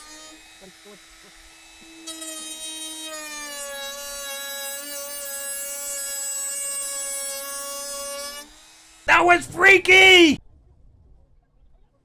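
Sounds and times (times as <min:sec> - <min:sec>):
power tool motor whining: 0:00.0 - 0:09.1.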